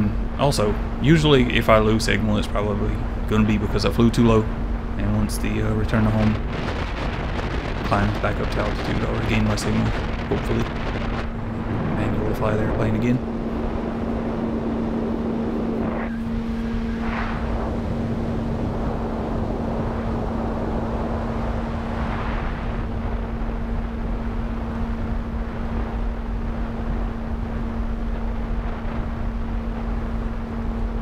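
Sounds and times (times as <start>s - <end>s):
electric motor and propeller humming: 0.0s - 31.0s
rush of air noise: 0.0s - 31.0s.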